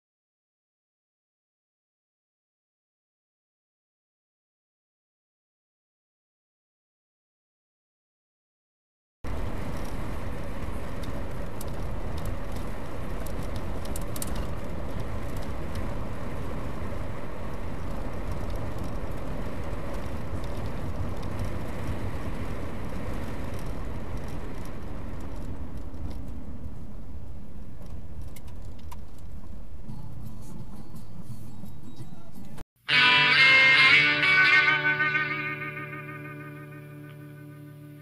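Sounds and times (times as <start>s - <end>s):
light ticks from road: 9.3s - 32.5s
road and engine noise in car: 9.3s - 32.7s.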